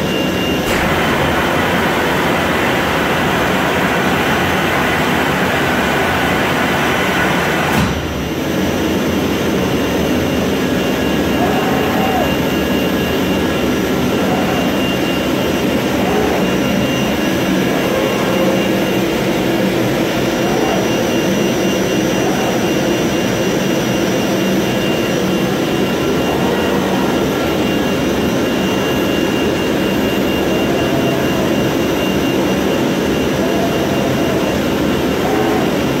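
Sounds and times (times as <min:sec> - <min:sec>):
cutting head whining: 0:10.8 - 0:36.0.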